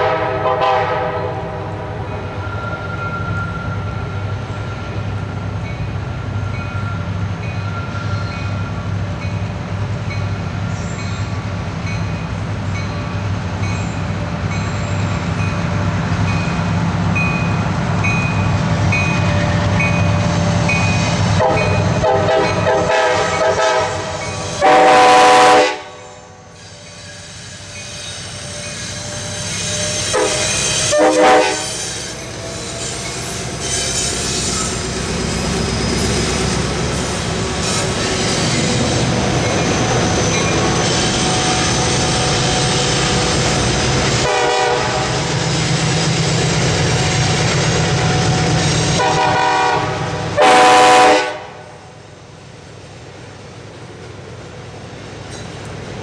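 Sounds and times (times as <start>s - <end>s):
train horn blasts: 0.0s - 2.1s, 21.3s - 26.5s, 29.8s - 31.9s, 41.4s - 45.3s, 46.9s - 51.9s
diesel locomotives rumbling: 0.0s - 56.0s.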